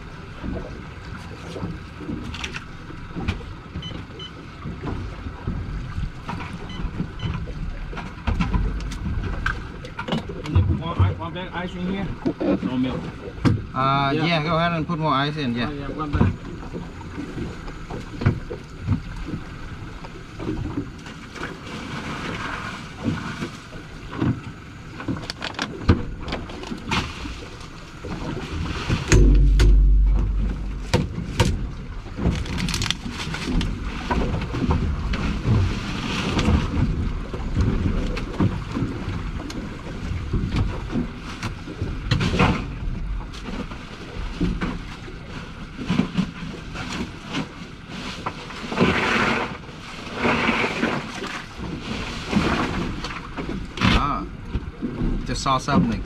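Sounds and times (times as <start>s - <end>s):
wind buffeting microphone: 28.3s - 45.3s
knocks and clatter: 29.0s - 33.7s.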